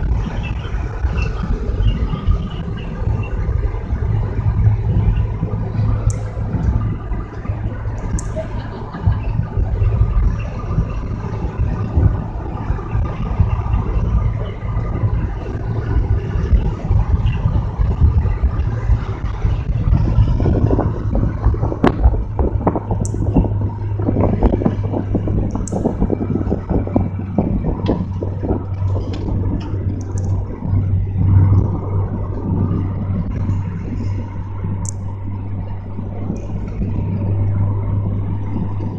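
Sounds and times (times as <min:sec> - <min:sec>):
car engine and road noise: 0:00.0 - 0:38.9.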